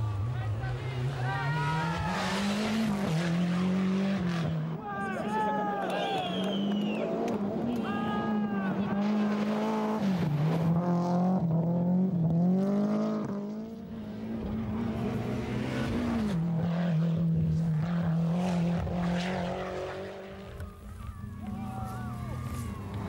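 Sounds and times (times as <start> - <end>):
car engine at steady revs: 0.0 - 4.6, 9.0 - 20.7
rally car engine revving: 0.0 - 4.8, 6.3 - 23.0.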